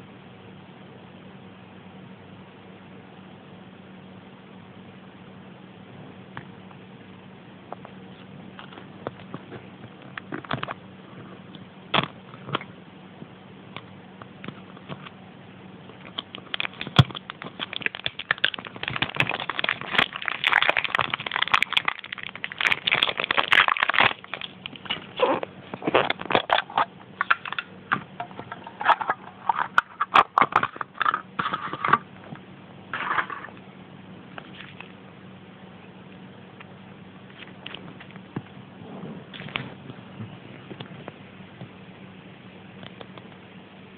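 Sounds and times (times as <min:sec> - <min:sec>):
packaging crinkling: 0:15.9 - 0:32.0.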